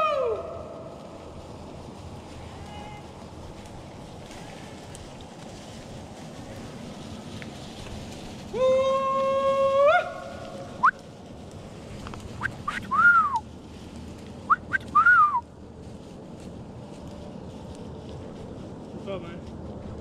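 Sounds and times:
hollered or whistled calls: 10.8 - 11.0, 12.4 - 13.4, 14.4 - 15.4.

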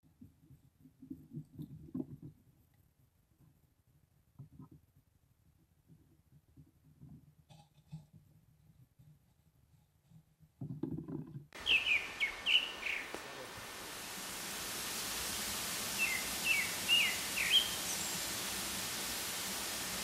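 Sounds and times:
small bird chirping: 11.6 - 20.0
steady hiss: 11.6 - 20.0.

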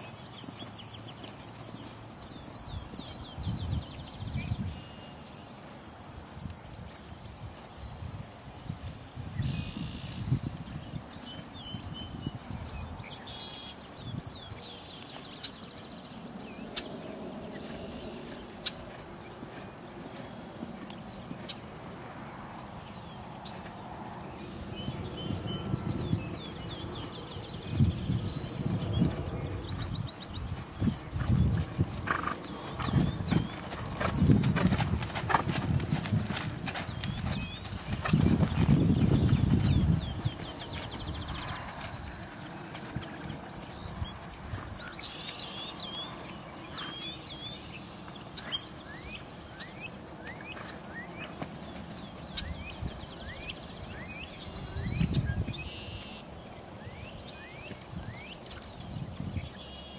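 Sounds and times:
horse hooves on grass: 0.0 - 56.7
small birds chirping: 0.0 - 59.9
horse hoofbeats on grass: 17.6 - 22.8, 29.2 - 49.1.

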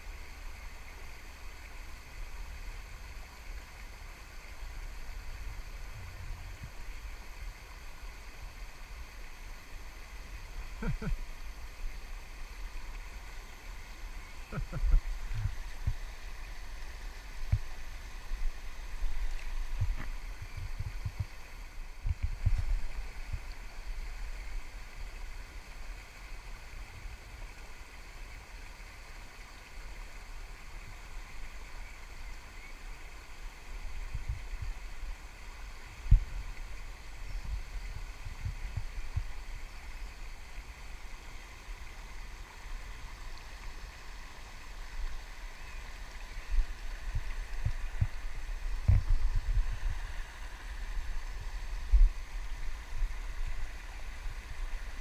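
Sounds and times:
river water rushing over weir: 0.0 - 55.0
low thumps on microphone: 19.7 - 21.3, 48.8 - 49.7.

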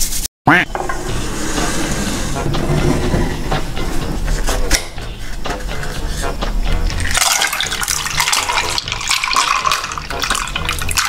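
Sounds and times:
drink pouring over ice: 6.9 - 11.0.

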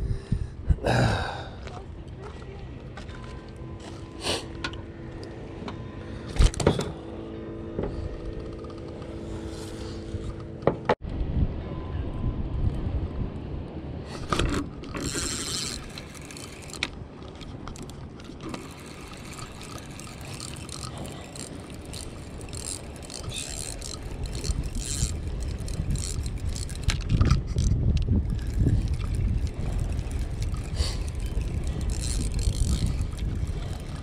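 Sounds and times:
wind buffeting microphone: 0.0 - 2.1, 11.0 - 13.6, 14.2 - 34.0
rod handling clicks and scrapes: 14.1 - 34.0
fishing reel cranking: 14.5 - 17.0, 17.6 - 34.0.

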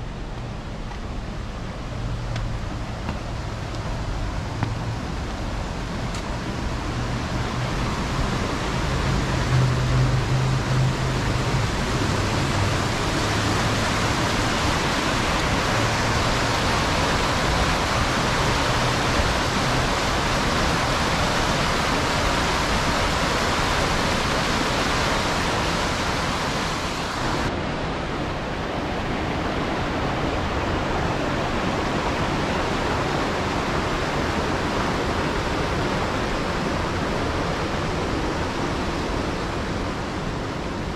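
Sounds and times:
water rushing over cascade: 0.0 - 40.9.

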